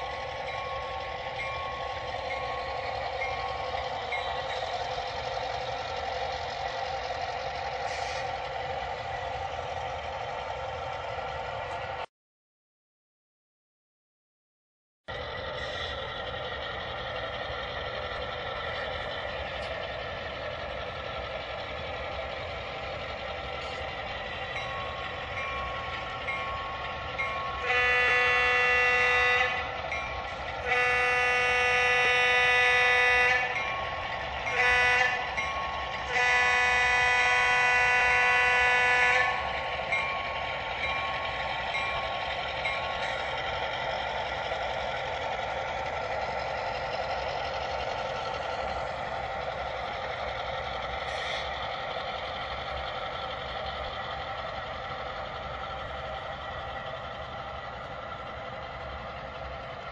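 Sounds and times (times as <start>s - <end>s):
model locomotive running sound: 0.0s - 12.1s, 15.1s - 59.9s
model train diesel horn blasts: 27.6s - 29.8s, 30.6s - 33.7s, 34.4s - 39.5s.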